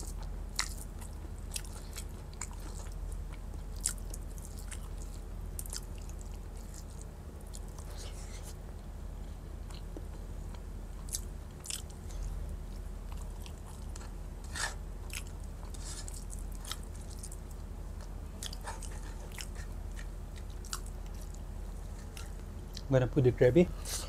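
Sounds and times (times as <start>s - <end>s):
person chewing food: 0.0s - 22.9s.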